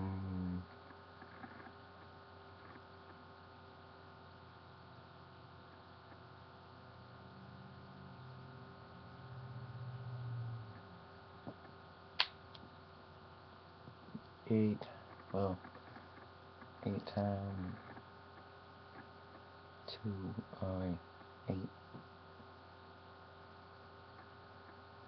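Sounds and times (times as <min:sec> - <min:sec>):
faint low drone: 0:00.0 - 0:01.7, 0:05.4 - 0:11.6
low electrical hum: 0:00.0 - 0:25.0
sharp click: 0:12.2 - 0:12.6.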